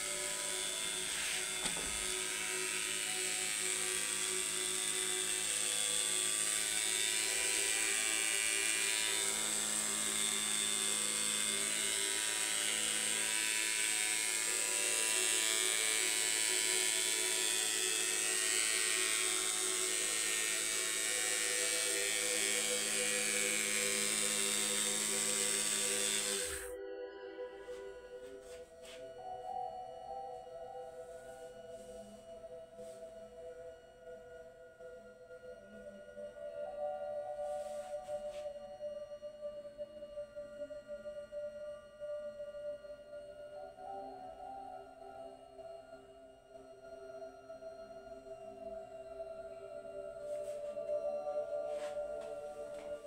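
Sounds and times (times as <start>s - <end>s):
small rotor whirring: 0.0s - 26.7s.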